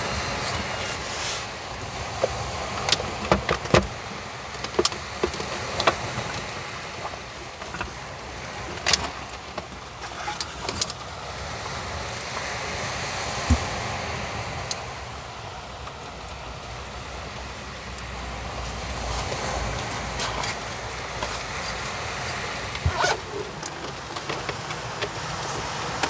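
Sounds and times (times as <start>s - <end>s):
steady background hiss: 0.0s - 26.0s
fabric pouch rustling: 21.2s - 24.0s.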